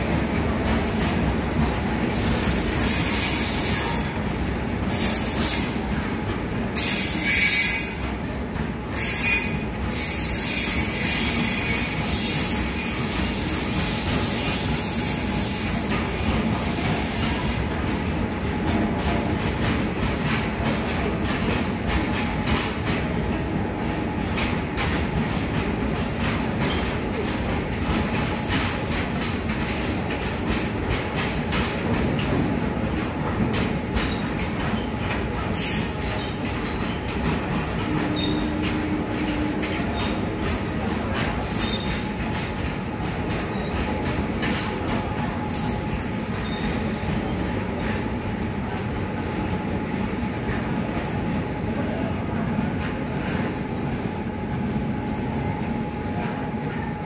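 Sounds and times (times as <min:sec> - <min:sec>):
train wheels rumbling: 0:00.0 - 0:57.0
wheel squeal: 0:09.0 - 0:15.2, 0:37.8 - 0:40.6
wheels clacking over rail joints: 0:15.8 - 0:51.0.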